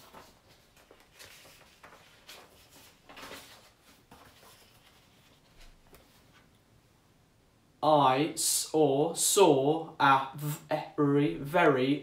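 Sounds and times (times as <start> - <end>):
paper cards rustling and sliding: 0.0 - 6.5.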